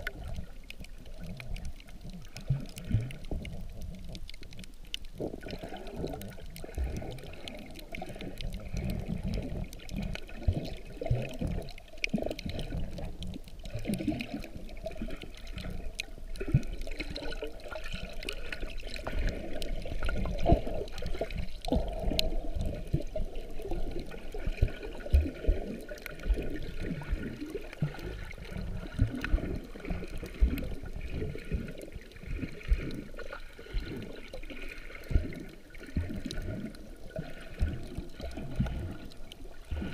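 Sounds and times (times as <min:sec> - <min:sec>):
muffled underwater sloshing: 0:00.0 - 0:39.9.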